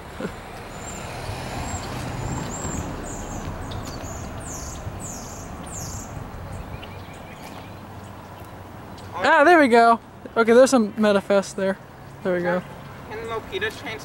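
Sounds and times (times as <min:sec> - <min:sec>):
bird chirping: 0:00.6 - 0:09.2.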